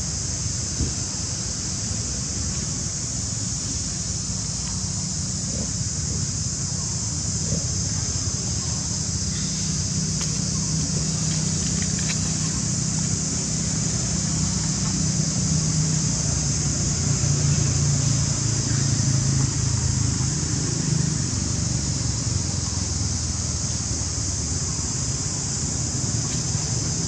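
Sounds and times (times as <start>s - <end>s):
high-pitched hiss: 0.0s - 27.0s.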